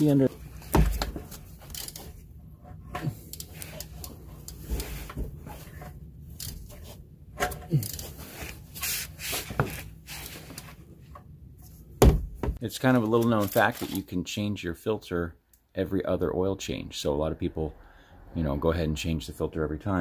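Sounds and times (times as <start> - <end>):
gloves and sleeve rubbing: 7.7 - 10.9.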